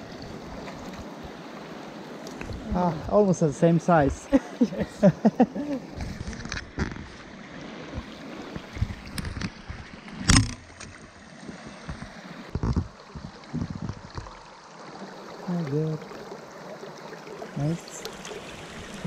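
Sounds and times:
rocky stream running: 0:00.0 - 0:19.0
knocks and splashes: 0:05.8 - 0:14.6.

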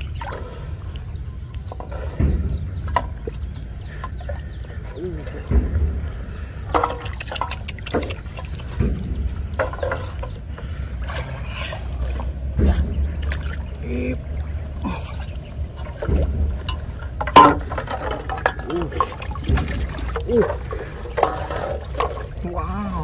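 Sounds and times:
muddy water sloshing and splashing: 0:00.0 - 0:23.0.

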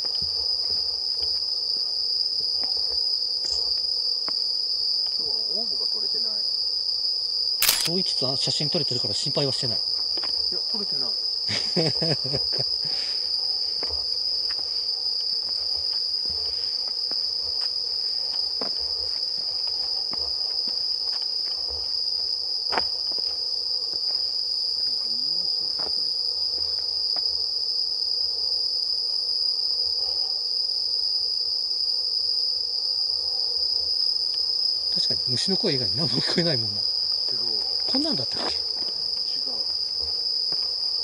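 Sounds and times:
crickets chirping: 0:00.0 - 0:41.0
sharp click: 0:07.6 - 0:08.0
footsteps on pavement: 0:10.0 - 0:10.5, 0:13.8 - 0:24.3, 0:37.6 - 0:40.9.

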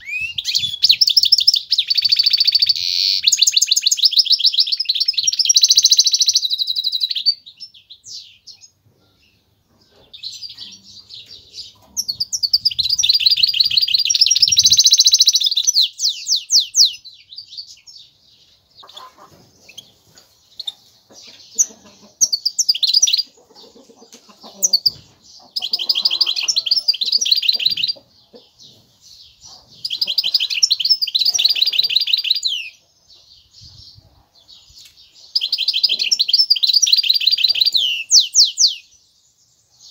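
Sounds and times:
bird twittering: 0:10.1 - 0:17.9.

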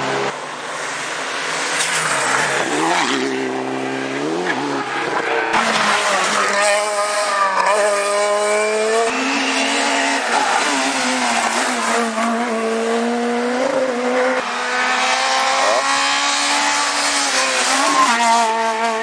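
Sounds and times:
rally car engine at high revs: 0:01.6 - 0:19.0.

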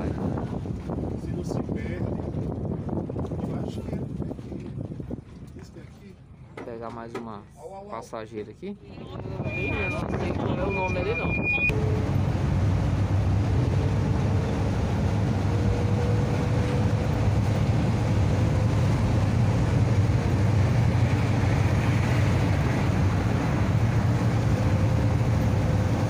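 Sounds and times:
road noise: 0:08.6 - 0:26.0
van engine drone: 0:09.0 - 0:26.0.

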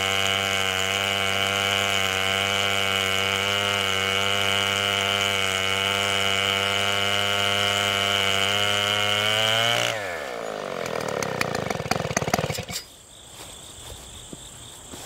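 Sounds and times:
chainsaw cutting through log: 0:00.0 - 0:12.9.

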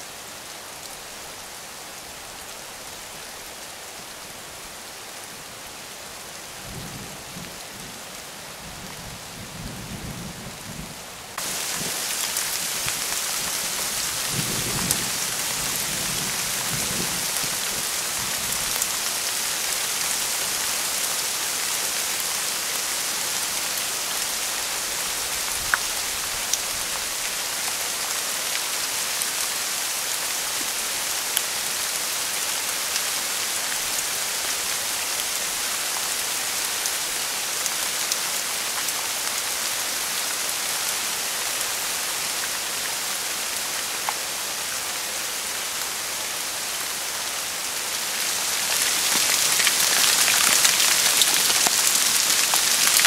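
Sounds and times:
rain falling on forest: 0:00.0 - 0:53.0
raindrop ticks: 0:48.6 - 0:53.0.

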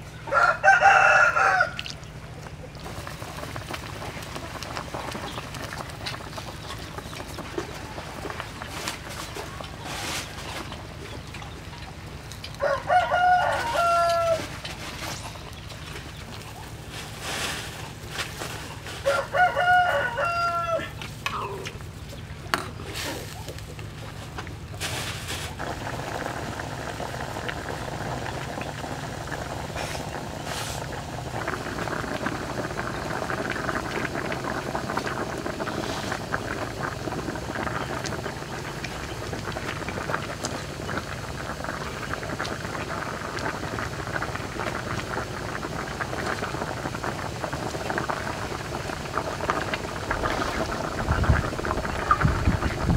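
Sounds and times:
broth boiling and bubbling: 0:00.0 - 0:52.9
rooster crowing: 0:00.3 - 0:01.9, 0:12.6 - 0:14.5, 0:19.0 - 0:21.5.

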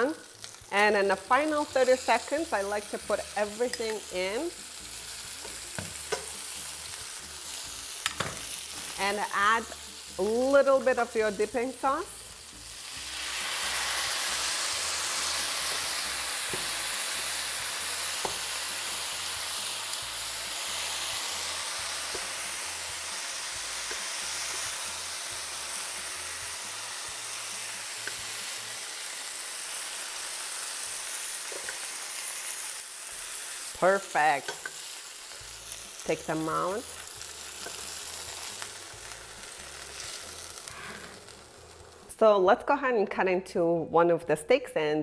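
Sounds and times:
sauce sizzling in a pan: 0:00.0 - 0:42.1
metal tongs clicking on pan: 0:03.6 - 0:04.0, 0:34.4 - 0:34.8.

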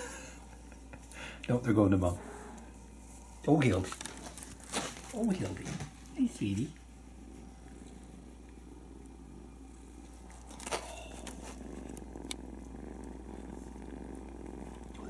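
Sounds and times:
cats purring: 0:00.0 - 0:15.0
small rustle: 0:02.5 - 0:08.6, 0:10.0 - 0:15.0.

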